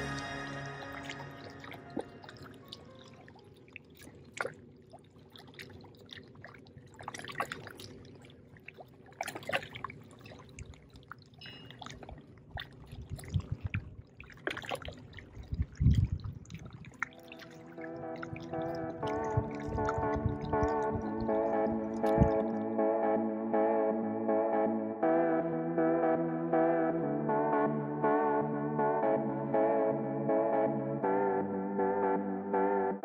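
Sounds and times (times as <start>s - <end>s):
small splashes and drips: 1.0s - 22.6s
water lapping among rocks: 2.1s - 22.3s.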